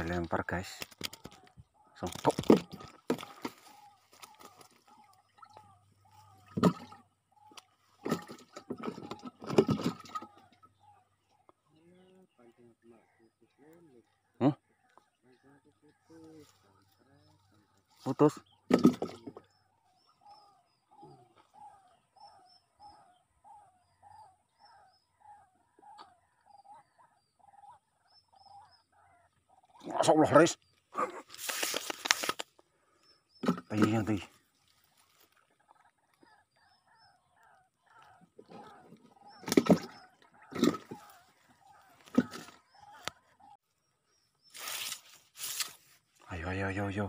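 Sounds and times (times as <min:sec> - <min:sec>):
animal calls: 0:00.0 - 0:44.7
water splashing and sloshing: 0:02.1 - 0:11.1, 0:38.0 - 0:43.2.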